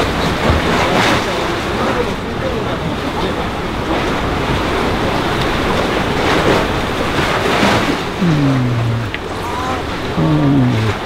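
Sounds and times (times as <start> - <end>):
sea waves rushing: 0.0 - 11.0
wind: 0.0 - 11.0.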